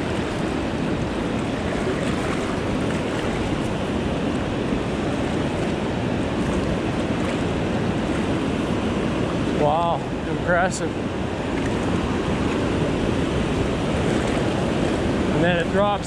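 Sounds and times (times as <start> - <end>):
river rushing over rocks: 0.0 - 16.0.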